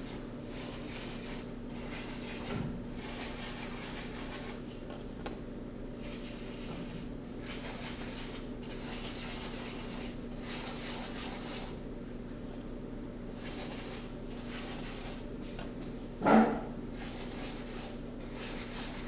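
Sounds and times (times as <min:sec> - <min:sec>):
paintbrush scrubbing cardboard: 0:00.0 - 0:04.6, 0:06.0 - 0:11.8, 0:13.3 - 0:15.3, 0:16.9 - 0:19.0.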